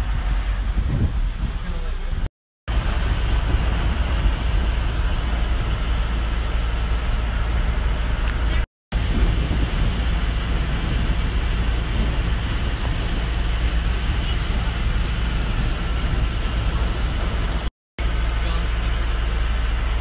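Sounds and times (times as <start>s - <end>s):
boat motor low rumble: 0.0s - 20.0s
rushing water noise: 2.7s - 17.7s.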